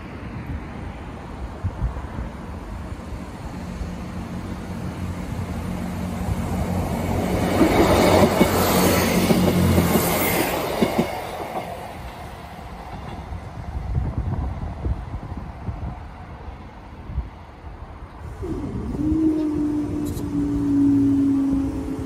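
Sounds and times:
diesel train engine drone: 0.0s - 22.0s
train wheels clicking over rail joints: 7.1s - 13.4s.

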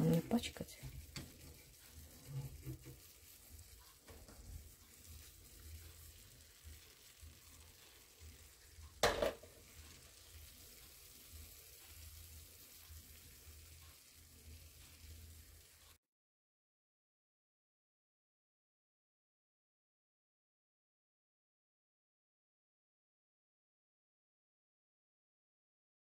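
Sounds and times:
vegetables sizzling in a frying pan: 0.0s - 16.0s.

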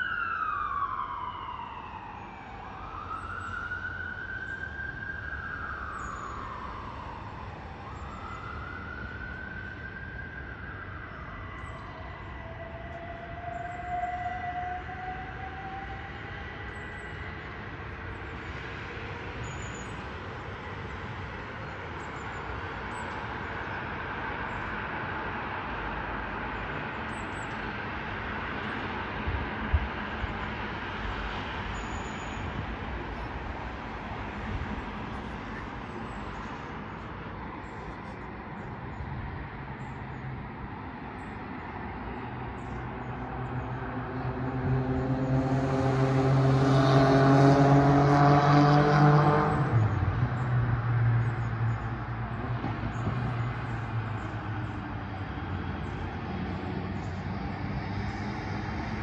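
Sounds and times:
siren wailing: 0.0s - 17.8s
street traffic noise: 0.0s - 59.0s.

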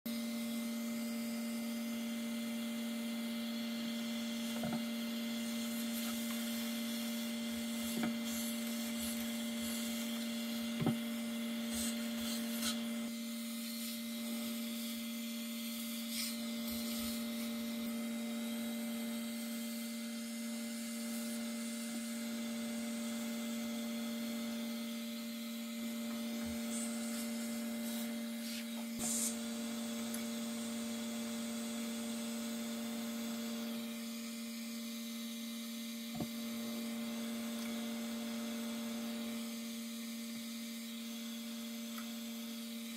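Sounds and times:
steady electrical hum: 0.1s - 42.9s
brush scrubbing: 5.5s - 10.7s, 11.6s - 12.9s.

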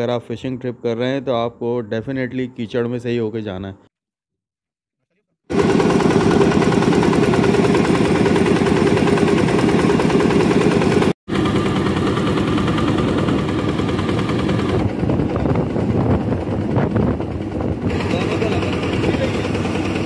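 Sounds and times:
boat engine chugging: 5.5s - 20.0s.

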